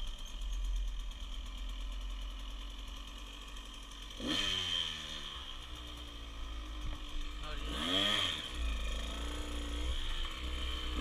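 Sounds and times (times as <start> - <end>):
dirt bike engine idling and revving: 0.0 - 11.0.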